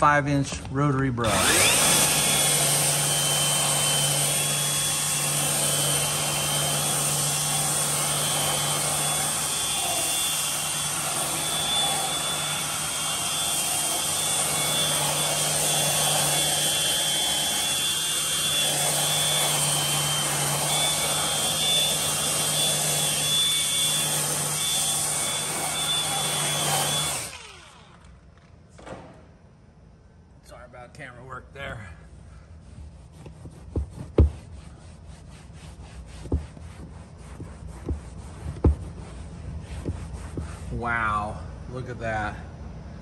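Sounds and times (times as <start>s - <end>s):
rotary polisher motor hum: 1.2s - 28.2s, 33.1s - 40.7s
brush scrubbing leather: 32.5s - 40.8s.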